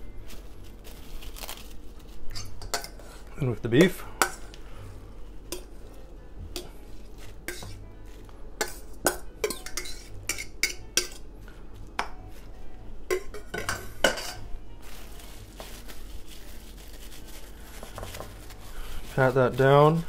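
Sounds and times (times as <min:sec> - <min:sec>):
utensil scraping metal bowl: 0:07.4 - 0:07.8.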